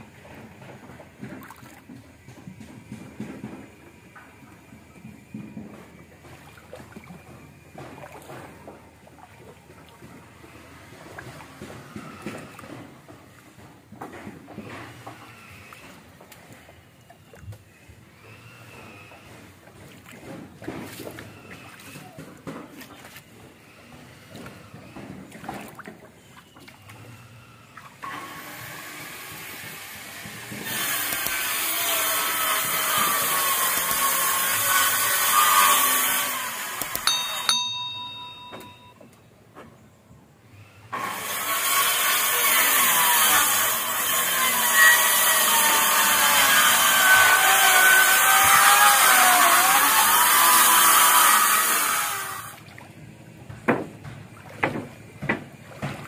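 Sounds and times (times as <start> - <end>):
circular saw cutting wood: 28.0 - 38.8, 41.0 - 52.6.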